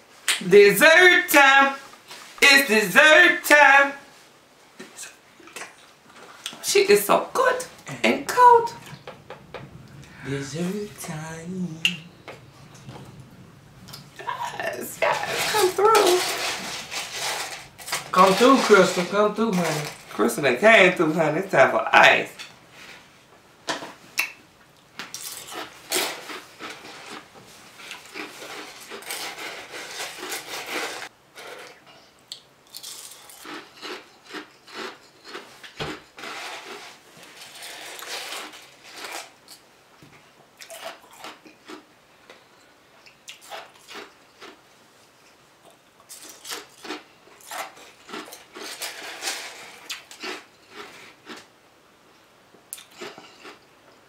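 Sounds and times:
ice being crunched and chewed: 15.0s - 20.2s, 25.1s - 39.6s, 40.6s - 42.4s, 43.3s - 44.6s, 45.2s - 51.5s, 52.7s - 53.6s.

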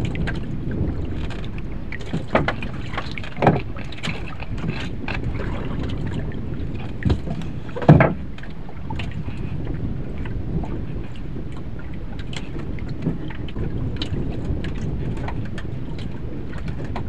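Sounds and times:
dull knocks on boat: 0.0s - 8.4s
water noise: 0.0s - 17.0s
wind: 0.0s - 17.0s.

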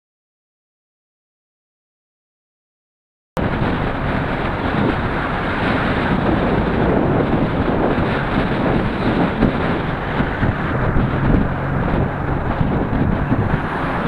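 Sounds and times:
tyre and road noise: 3.4s - 14.0s
wind buffeting microphone: 3.4s - 14.0s.

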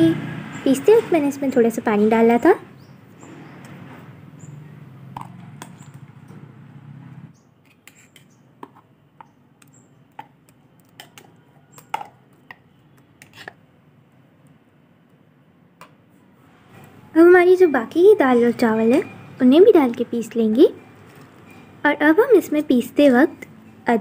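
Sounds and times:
metal spoon scraping metal jar: 13.2s - 13.6s.

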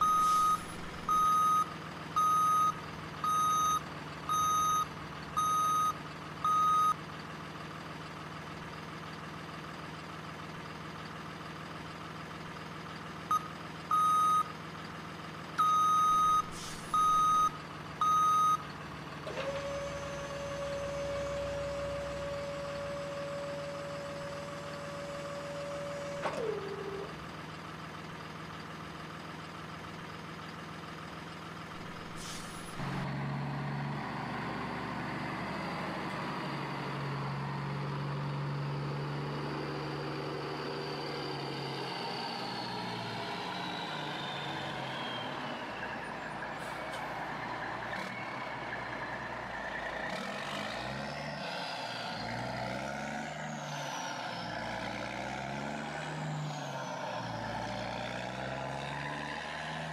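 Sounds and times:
electronic reversing beeps: 0.0s - 7.0s, 13.3s - 14.5s, 15.6s - 18.6s
low engine-like hum: 0.0s - 14.8s.

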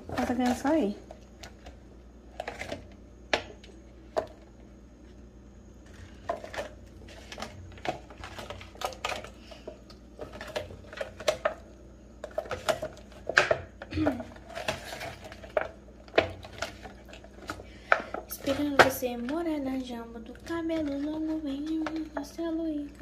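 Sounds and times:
plastic mould crackling: 5.8s - 11.6s, 12.2s - 23.0s.

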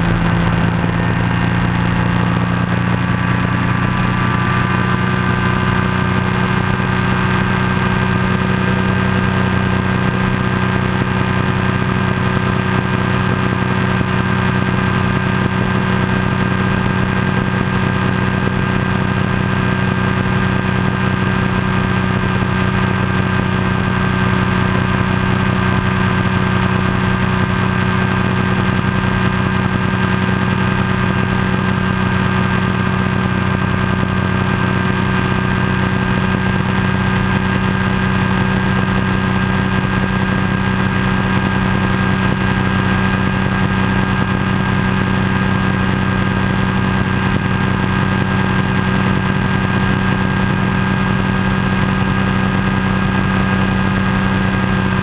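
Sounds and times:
aircraft engine and propeller: 0.0s - 55.0s.

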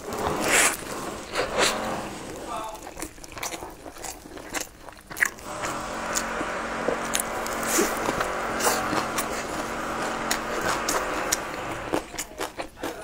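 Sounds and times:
crunching crispy food: 2.5s - 5.5s
wet chewing sounds: 2.7s - 5.5s, 10.8s - 13.0s
steady background hum: 5.3s - 12.6s.

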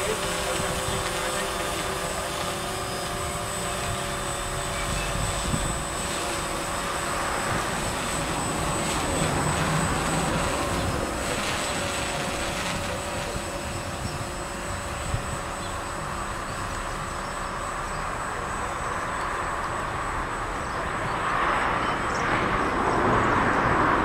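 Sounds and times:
drone propellers whining: 0.0s - 24.0s
wind rumble on microphone: 3.8s - 15.5s.

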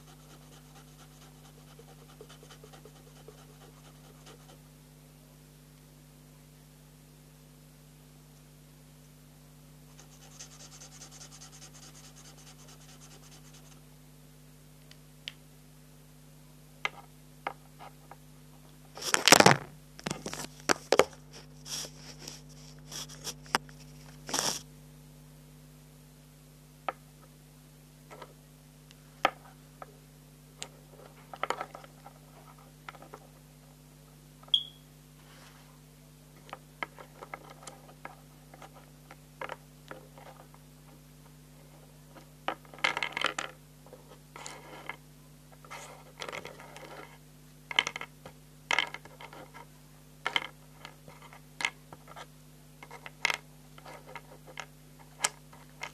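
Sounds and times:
steady low hum: 0.0s - 55.9s
short high beep: 34.5s - 34.9s.

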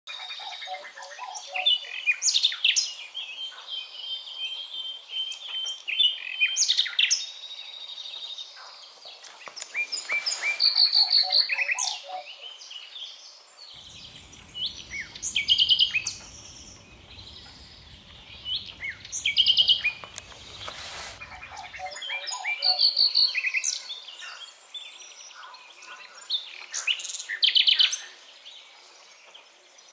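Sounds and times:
songbirds chirping and singing: 0.1s - 29.9s.

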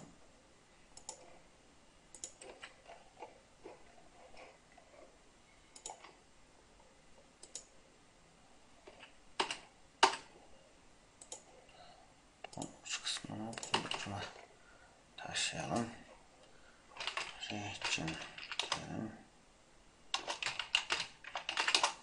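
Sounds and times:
computer mouse clicks: 1.0s - 1.4s, 2.1s - 4.6s, 5.7s - 6.2s, 7.4s - 7.7s, 11.2s - 11.5s, 12.4s - 14.2s
keyboard clicks: 1.0s - 1.4s, 2.1s - 3.8s, 5.7s - 6.2s, 7.4s - 7.7s, 8.9s - 10.3s, 11.2s - 11.5s, 12.4s - 14.3s, 17.0s - 19.0s, 20.1s - 22.0s.

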